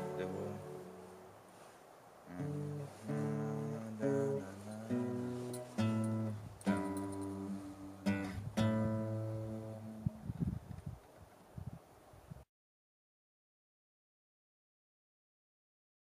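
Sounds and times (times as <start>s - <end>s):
classical guitar strumming chords: 0.0s - 1.7s, 2.3s - 10.3s.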